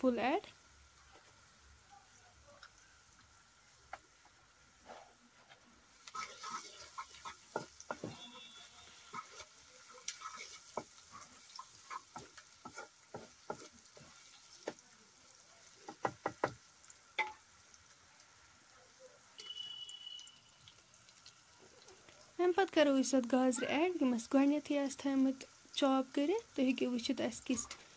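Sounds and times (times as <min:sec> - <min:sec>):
frying oil sizzling: 0:00.0 - 0:27.9
wooden spatula scraping a pan: 0:04.8 - 0:14.8.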